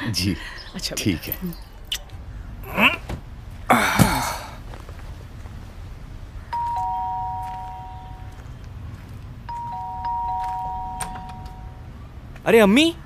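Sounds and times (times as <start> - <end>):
two-tone doorbell chime: 6.6 - 8.4, 9.5 - 11.9.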